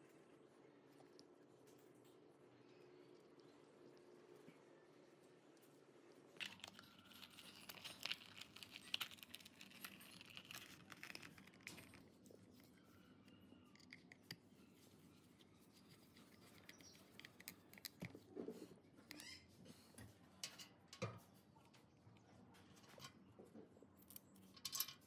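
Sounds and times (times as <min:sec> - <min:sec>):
gloved hands scratching and clicking: 0:06.4 - 0:13.0, 0:13.7 - 0:18.4.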